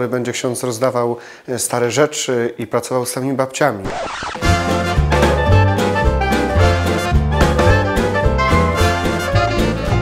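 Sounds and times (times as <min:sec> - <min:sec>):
upbeat jazz music with brass: 0:04.3 - 0:10.0.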